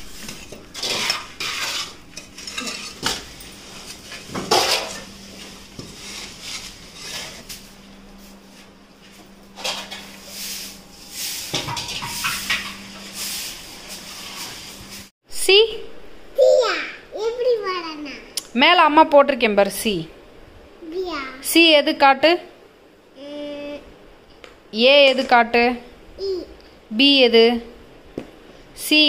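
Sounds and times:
metal tools clinking and scraping: 0:00.2 - 0:05.1, 0:11.5 - 0:12.8.

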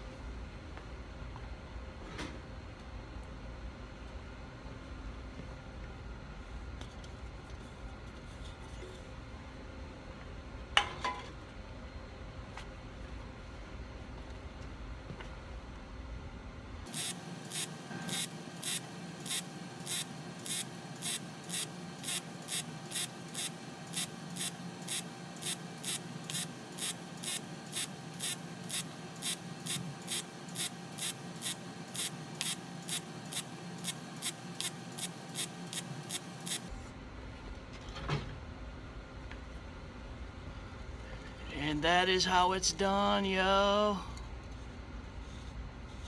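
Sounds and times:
welding arc crackling and hissing: 0:16.9 - 0:36.7.

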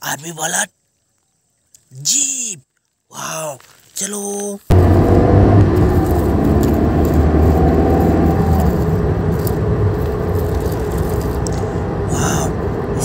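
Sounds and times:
engine rumbling: 0:04.7 - 0:13.0.

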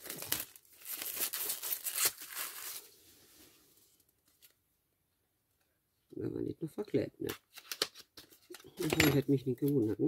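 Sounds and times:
plastic wrap tearing and crinkling: 0:00.0 - 0:02.9.

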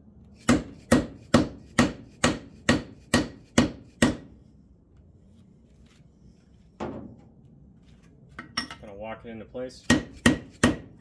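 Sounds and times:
hammer tapping metal: 0:00.4 - 0:04.3.

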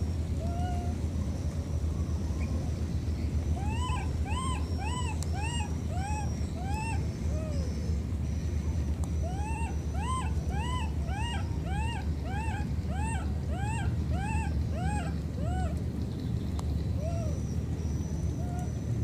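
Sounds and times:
baby monkey crying: 0:03.6 - 0:07.7, 0:09.3 - 0:15.6.

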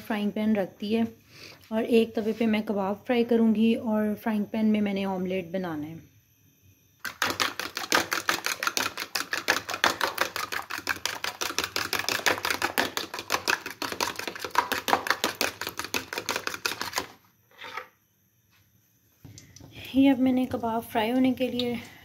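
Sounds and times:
fork beating eggs in a bowl: 0:07.0 - 0:17.2.

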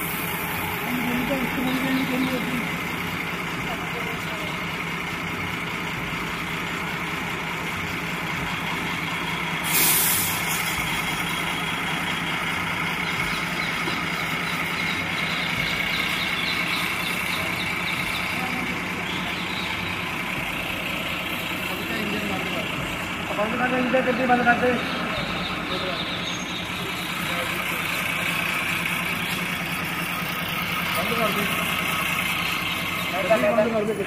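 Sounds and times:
bus engine hum: 0:00.0 - 0:34.0
road noise: 0:00.0 - 0:34.0
air brakes hissing: 0:09.4 - 0:11.6.

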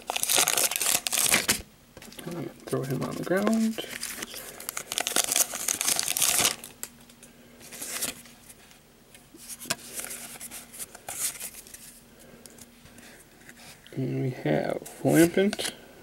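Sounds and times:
foil wrapper crinkling and tearing: 0:00.0 - 0:01.6, 0:02.8 - 0:08.3
cards rustling: 0:00.0 - 0:08.6, 0:09.4 - 0:13.9.

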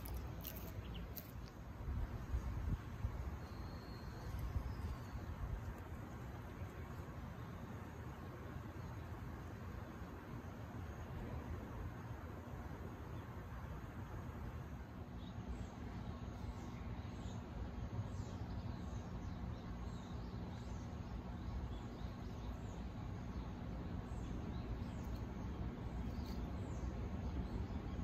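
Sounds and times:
small birds chirping: 0:00.0 - 0:09.2, 0:15.0 - 0:28.0
low outdoor rumble: 0:00.0 - 0:28.0.

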